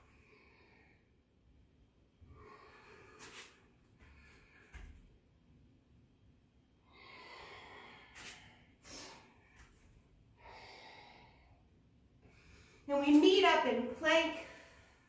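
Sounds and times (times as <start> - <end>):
woman breathing through nose: 6.9 - 9.7, 10.4 - 11.6.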